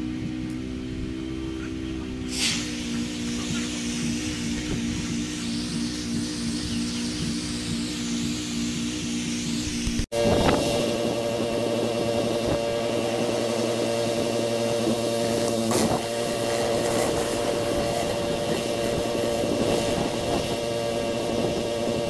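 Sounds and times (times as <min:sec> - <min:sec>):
pressure washer running: 0:00.0 - 0:22.0.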